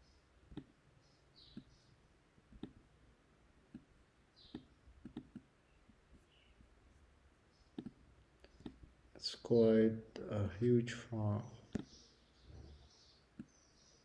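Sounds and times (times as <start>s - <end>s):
computer mouse clicks: 2.5s - 2.8s, 3.7s - 5.5s, 7.7s - 8.9s.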